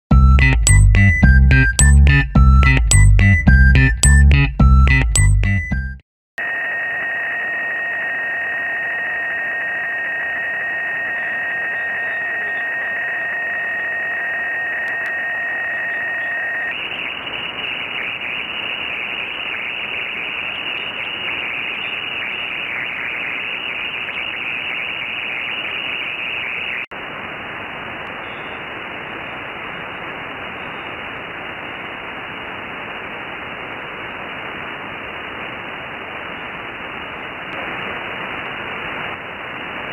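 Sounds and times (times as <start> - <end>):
harsh crackling buzz: 6.4 - 23.4
radio interference hiss: 6.4 - 39.9
steady whistling tones: 6.8 - 26.8.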